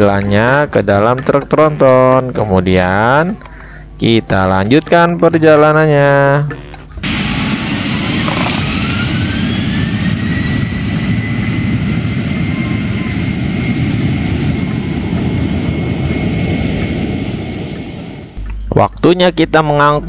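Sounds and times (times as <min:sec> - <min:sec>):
engine whine: 0:06.4 - 0:18.7
loud engine rumble: 0:07.0 - 0:18.4.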